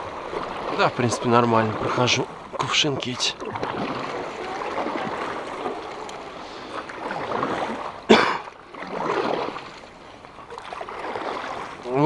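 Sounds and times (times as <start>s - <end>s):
paddle swishing through water: 0.0s - 12.0s.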